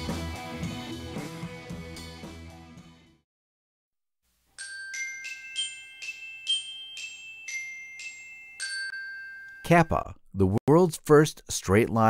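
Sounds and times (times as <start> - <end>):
glockenspiel melody: 4.6 - 10.0.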